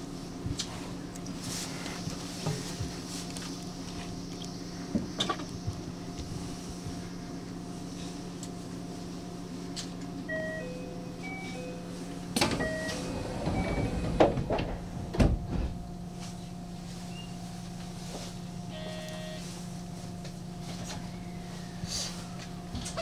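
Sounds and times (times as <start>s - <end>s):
electric train hum: 0.0s - 23.0s
electronic beep tones: 12.6s - 13.0s.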